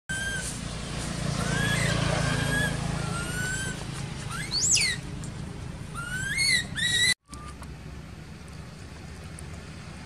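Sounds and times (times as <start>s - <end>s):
baby monkey crying: 0.1s - 0.5s, 1.4s - 5.0s, 5.9s - 7.5s
low steady hum: 6.6s - 10.0s.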